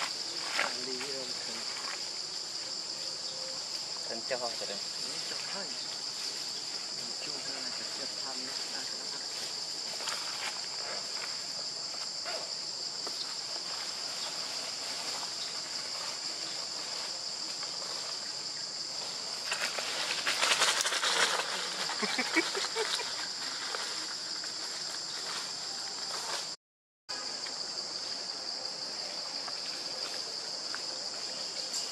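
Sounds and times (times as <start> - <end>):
high insect drone: 0.0 - 31.9
dry leaves crackling: 19.4 - 25.3.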